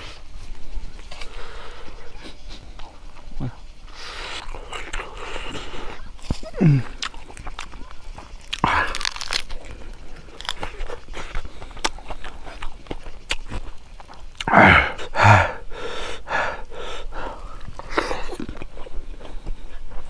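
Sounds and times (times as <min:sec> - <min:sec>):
chewing and smacking: 0:02.1 - 0:03.6, 0:04.2 - 0:14.5, 0:17.3 - 0:20.0
breathy vocal sounds: 0:03.4 - 0:07.2, 0:08.5 - 0:12.4, 0:14.4 - 0:19.8
wet mouth clicks: 0:04.4 - 0:06.0, 0:06.8 - 0:14.6, 0:17.6 - 0:19.0.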